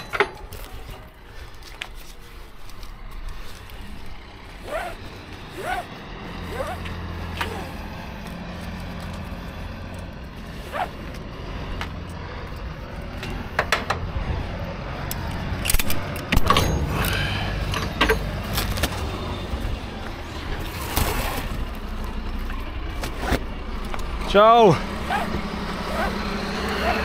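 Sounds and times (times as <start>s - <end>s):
metal strap hooks clinking: 0.0s - 11.2s.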